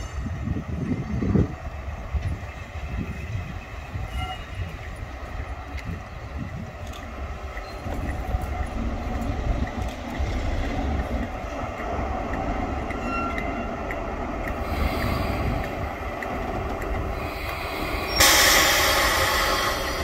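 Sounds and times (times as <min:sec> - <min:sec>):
diesel locomotive running: 0:00.0 - 0:20.0
train coaches rolling over track: 0:00.0 - 0:20.0.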